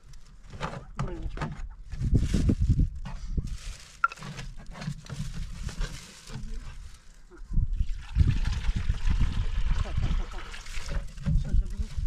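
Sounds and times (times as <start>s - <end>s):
water pouring and gurgling: 4.0s - 12.0s.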